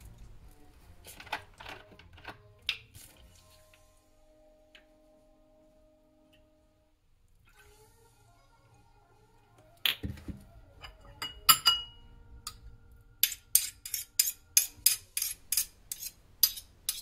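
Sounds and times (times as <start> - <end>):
spoon clinking on ceramic bowl: 10.8 - 12.6.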